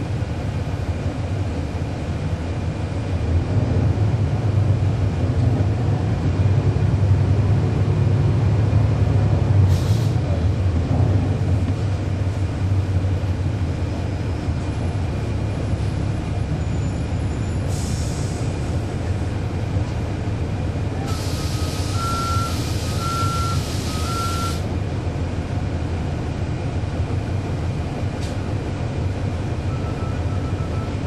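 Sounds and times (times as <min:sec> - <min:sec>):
bus diesel engine droning: 0:00.0 - 0:31.0
air hiss: 0:09.7 - 0:10.2, 0:21.1 - 0:23.0.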